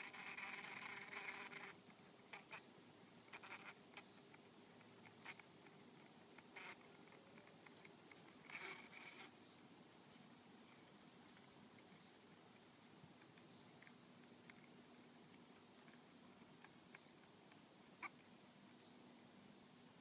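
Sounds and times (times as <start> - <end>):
bee scrabbling: 3.3 - 4.1, 6.4 - 9.4.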